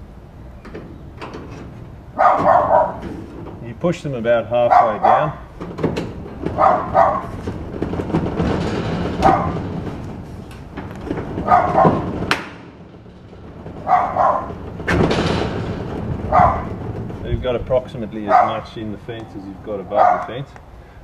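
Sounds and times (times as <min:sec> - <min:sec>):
metal scraping and knocking: 0:00.4 - 0:20.5
dog barking: 0:02.2 - 0:03.0, 0:04.7 - 0:05.4, 0:06.6 - 0:07.3, 0:09.2 - 0:09.6, 0:11.5 - 0:12.1, 0:13.9 - 0:14.5, 0:16.3 - 0:16.7, 0:18.3 - 0:18.6, 0:20.0 - 0:20.3.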